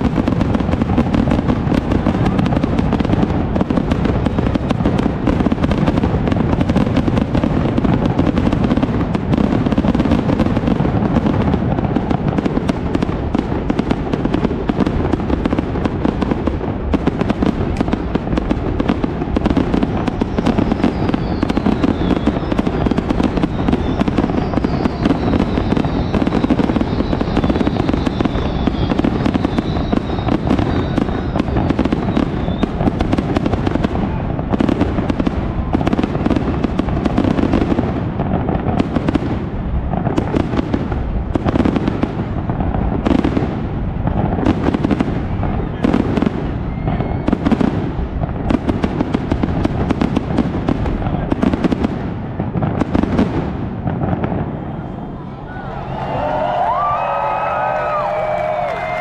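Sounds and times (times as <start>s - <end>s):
firework shell bursts and crackles: 0.0s - 54.9s
faint high wavering whistle: 23.4s - 31.4s.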